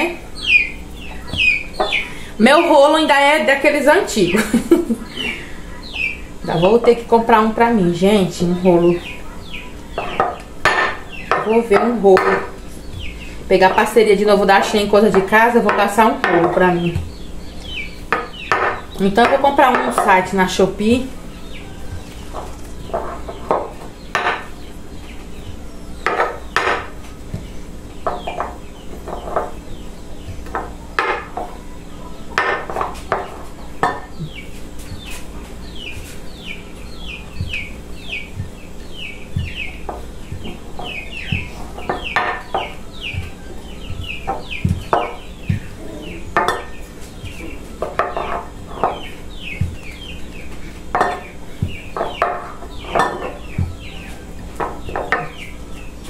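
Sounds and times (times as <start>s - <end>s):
chickens clucking: 0.3s - 2.3s, 4.0s - 7.6s, 8.2s - 56.0s
dough being rolled on table: 39.2s - 56.0s.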